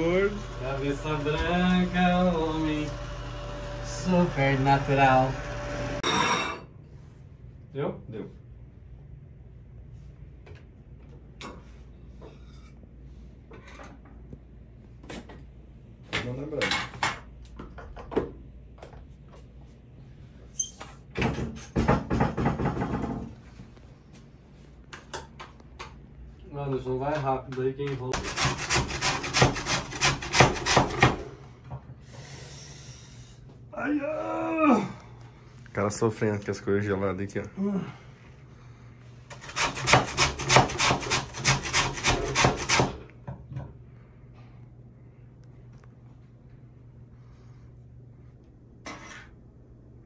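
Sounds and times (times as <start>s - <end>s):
grating on a metal grater: 28.2s - 31.1s, 39.3s - 43.0s.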